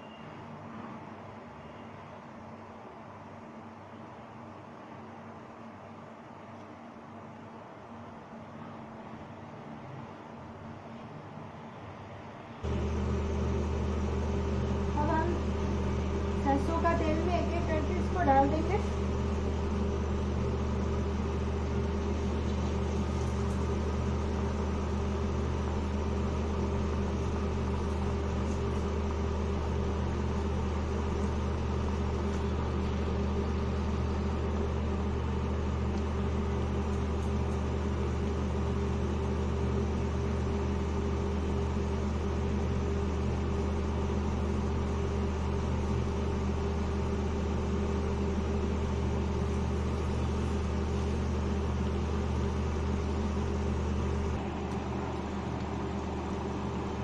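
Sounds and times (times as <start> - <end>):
steady low hum: 12.6 - 57.0
batter deep-frying in oil: 12.7 - 57.0.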